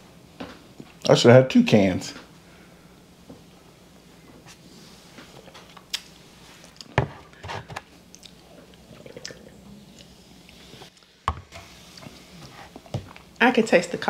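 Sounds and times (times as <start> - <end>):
person gulping: 8.2 - 10.1.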